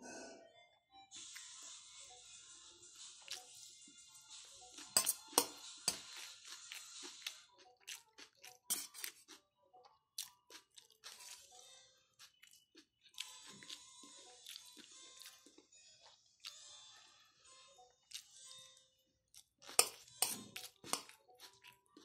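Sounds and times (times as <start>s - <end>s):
faint background music: 0.0s - 22.0s
spoon scraping steel plate: 4.9s - 6.2s, 8.7s - 9.2s, 19.7s - 21.1s.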